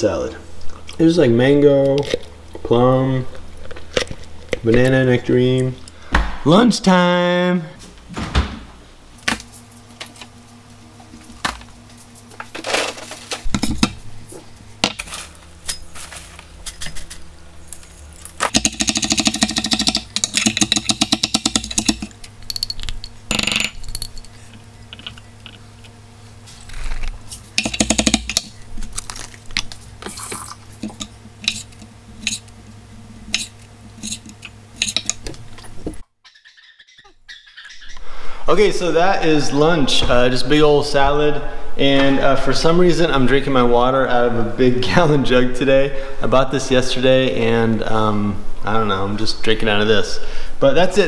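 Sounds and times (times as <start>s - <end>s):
low steady hum: 0.0s - 36.0s.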